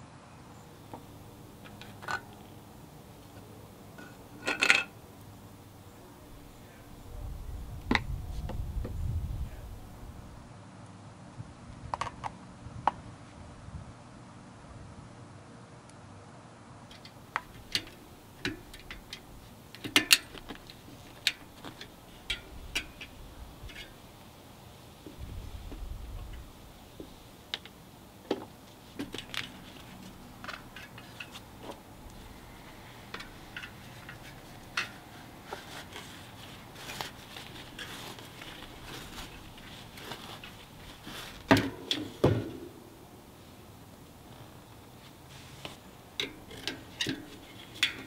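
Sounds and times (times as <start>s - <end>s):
metallic clicks from spokes: 16.9s - 24.3s, 29.0s - 42.8s, 45.7s - 48.0s.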